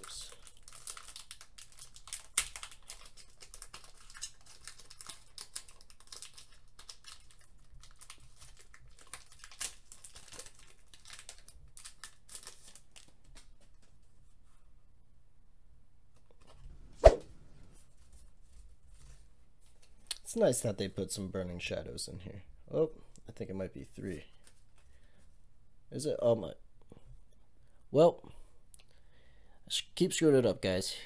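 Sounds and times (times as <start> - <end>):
foil wrapper crinkling: 0.0 - 13.9.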